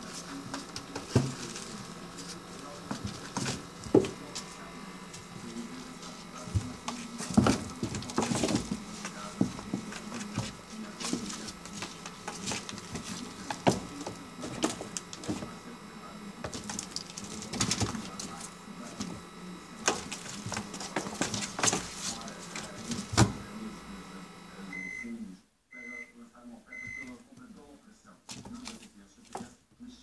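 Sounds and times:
kitten scratching cardboard: 0:00.0 - 0:23.4.

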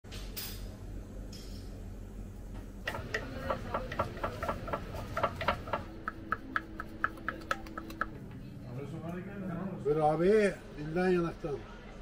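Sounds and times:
knife chopping on wooden board: 0:02.9 - 0:08.1.

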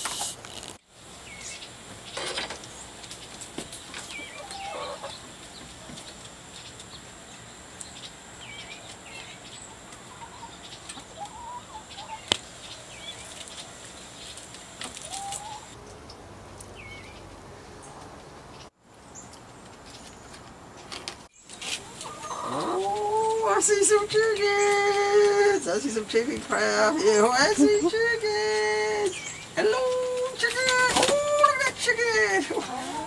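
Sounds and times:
faint steady high whine: 0:00.0 - 0:17.8
chickens clucking: 0:03.7 - 0:06.9, 0:08.8 - 0:13.6, 0:14.4 - 0:15.8, 0:21.6 - 0:25.6, 0:32.4 - 0:33.0
high chirping calls: 0:04.0 - 0:14.4, 0:15.0 - 0:17.3, 0:27.1 - 0:30.9.

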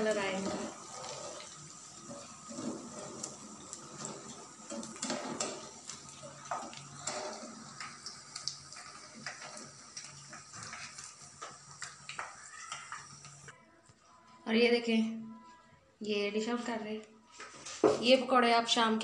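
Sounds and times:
food frying in hot oil: 0:00.0 - 0:13.5.

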